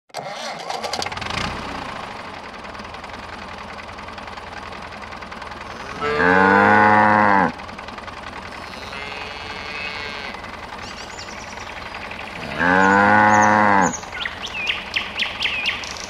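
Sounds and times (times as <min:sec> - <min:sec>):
tractor engine running: 0:00.1 - 0:16.0
cow mooing: 0:05.7 - 0:07.6, 0:08.6 - 0:10.5, 0:12.3 - 0:14.1.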